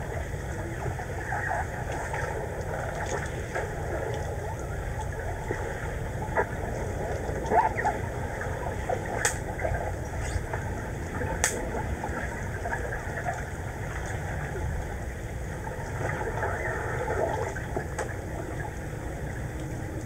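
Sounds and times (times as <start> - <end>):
underwater low rumble: 0.0 - 20.0
underwater crackling: 0.1 - 14.6.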